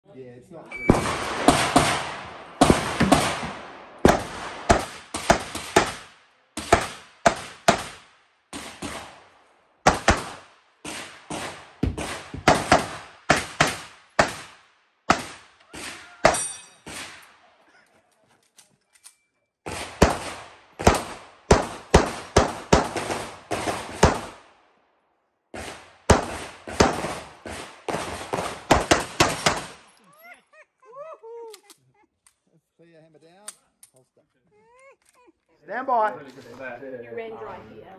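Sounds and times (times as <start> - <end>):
handgun shots: 0.8 - 9.2, 9.9 - 17.4, 25.6 - 29.9.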